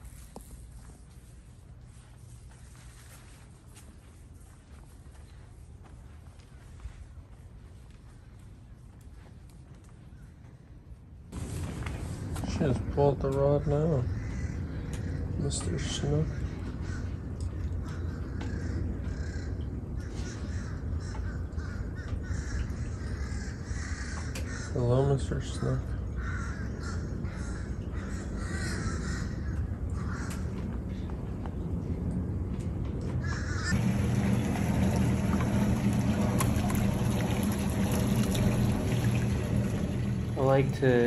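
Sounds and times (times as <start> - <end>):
low mechanical hum: 0.0 - 41.0
water sloshing and trickling: 11.4 - 24.6, 33.0 - 41.0
birds calling: 12.5 - 31.2, 33.2 - 41.0
steady low hum: 25.8 - 41.0.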